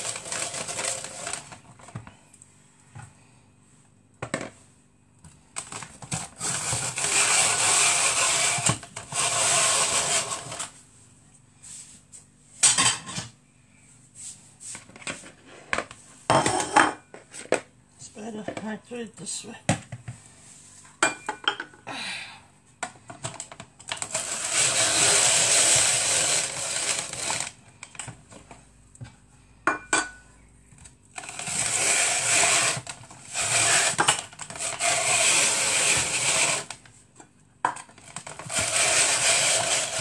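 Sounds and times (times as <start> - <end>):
electric kitchen machine running: 0.0 - 1.8, 5.6 - 10.8, 23.8 - 27.7, 31.1 - 36.9, 38.0 - 40.0.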